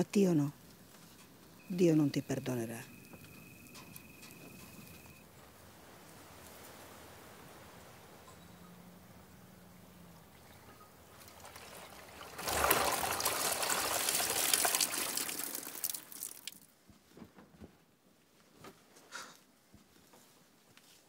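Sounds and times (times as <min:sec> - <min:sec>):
water sloshing and trickling: 0:10.2 - 0:16.7
water drips: 0:10.3 - 0:16.7
water splash: 0:11.1 - 0:16.6.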